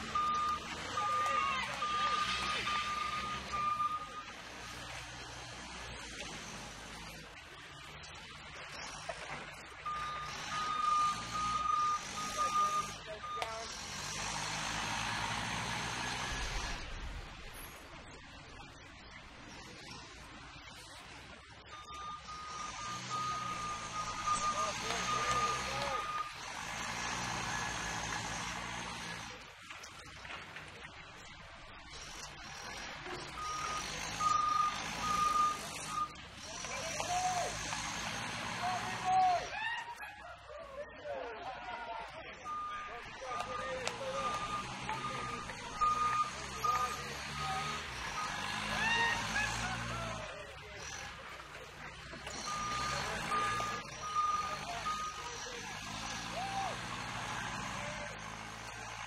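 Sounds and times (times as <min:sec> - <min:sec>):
forklift reversing beeper: 0:00.0 - 0:05.0, 0:09.8 - 0:16.8, 0:21.7 - 0:28.4, 0:33.1 - 0:39.1, 0:42.4 - 0:50.2, 0:52.2 - 0:58.2
forklift engine revving: 0:00.0 - 0:07.4, 0:08.8 - 0:17.5, 0:21.8 - 0:29.4, 0:31.8 - 0:39.5, 0:42.5 - 0:59.0.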